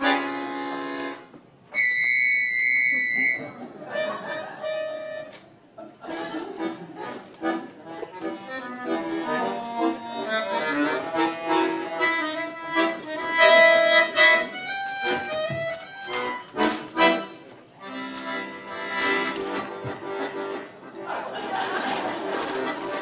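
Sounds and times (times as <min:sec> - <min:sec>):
accordion playing: 0:00.0 - 0:05.4, 0:06.0 - 0:23.0.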